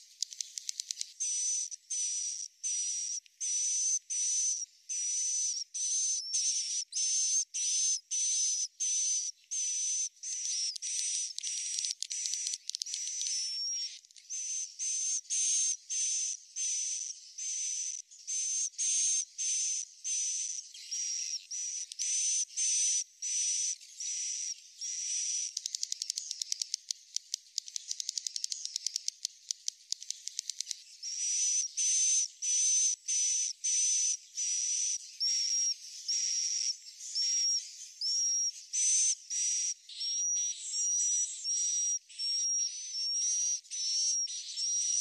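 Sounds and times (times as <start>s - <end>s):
fast run of clicks: 25.7s - 30.8s.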